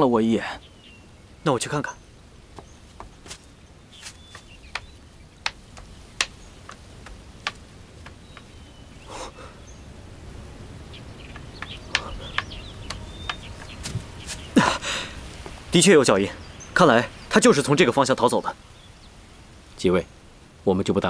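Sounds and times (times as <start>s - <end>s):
faint bird chirps: 0.0s - 6.8s, 8.0s - 10.0s, 10.7s - 20.3s
low steady background noise: 0.0s - 21.0s
sharp taps and knocks: 2.6s - 3.4s, 4.0s - 8.6s, 11.3s - 14.1s.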